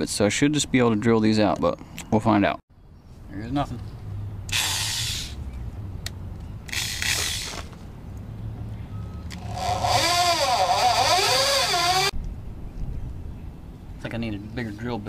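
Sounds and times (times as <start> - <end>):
electric drill grinding: 9.4 - 12.2.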